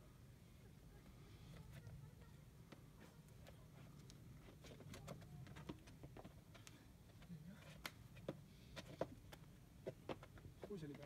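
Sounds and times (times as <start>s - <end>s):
hands and shoes tapping on rock: 2.7s - 11.0s.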